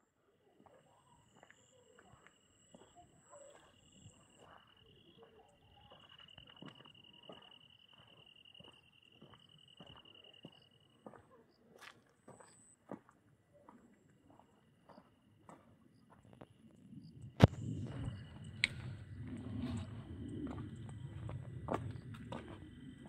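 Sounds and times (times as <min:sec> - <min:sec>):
higher faint insect trill: 0:00.6 - 0:11.6.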